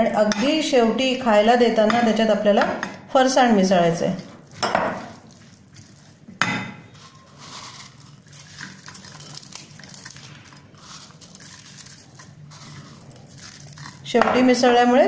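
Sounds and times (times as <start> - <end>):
crackling of dry fried snack: 4.2 - 6.3, 6.9 - 14.2.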